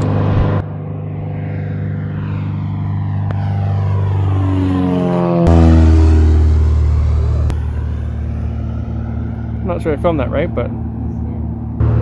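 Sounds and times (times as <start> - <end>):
propeller plane engine drone: 0.0 - 12.0.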